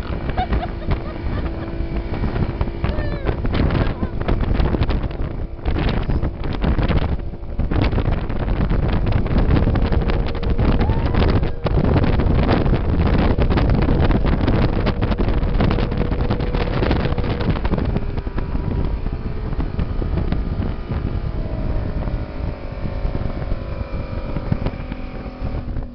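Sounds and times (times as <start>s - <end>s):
outboard motor running: 0.0s - 25.9s
water rushing past hull: 0.0s - 25.9s
wind buffeting microphone: 0.0s - 25.9s.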